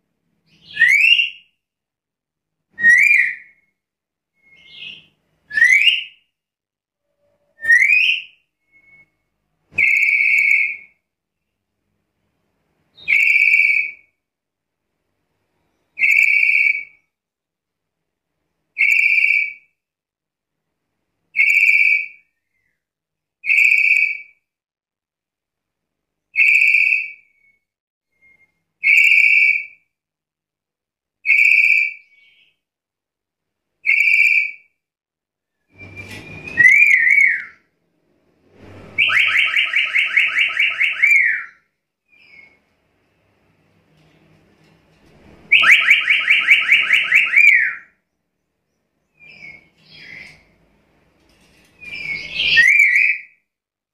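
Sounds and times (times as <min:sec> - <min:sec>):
parrot whistled calls: 0:00.6 - 0:01.4, 0:02.8 - 0:03.6, 0:07.6 - 0:09.1, 0:09.8 - 0:10.9, 0:13.0 - 0:14.0, 0:16.0 - 0:17.0, 0:33.8 - 0:34.6, 0:35.8 - 0:37.6, 0:45.5 - 0:47.9, 0:51.9 - 0:53.4.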